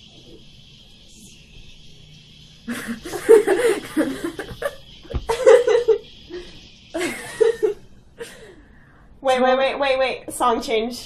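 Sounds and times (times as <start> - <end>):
girls laughing: 2.7 - 8.6.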